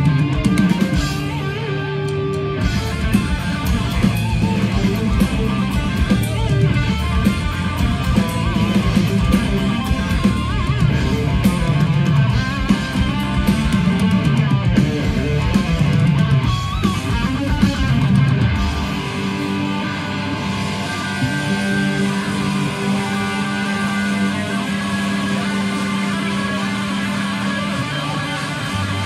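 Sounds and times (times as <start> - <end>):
distorted electric guitars: 0.0 - 29.0
live heavy metal band: 0.0 - 29.0.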